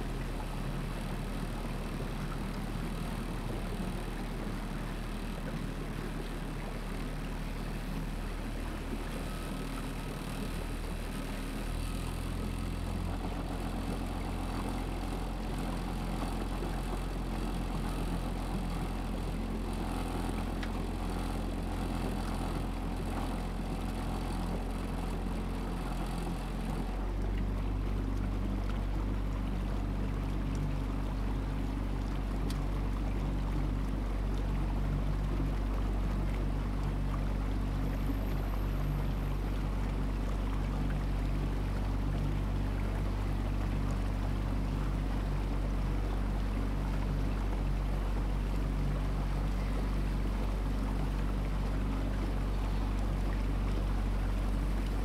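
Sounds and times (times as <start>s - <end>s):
small boat engine running: 0.0s - 55.0s.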